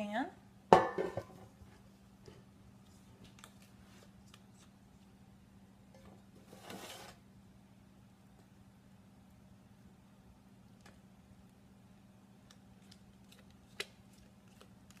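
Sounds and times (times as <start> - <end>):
faint steady hum: 0.0 - 15.0
spatula scraping metal bowl: 6.5 - 7.2.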